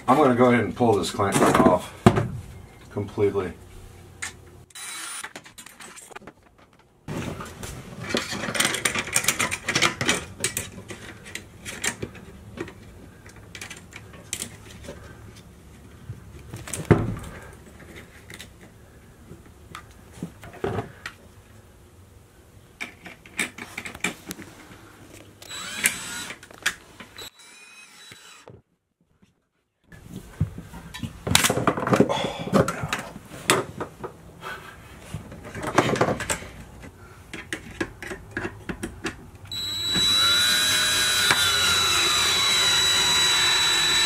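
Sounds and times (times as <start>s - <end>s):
cordless driver running: 25.4s - 26.4s, 39.5s - 44.0s.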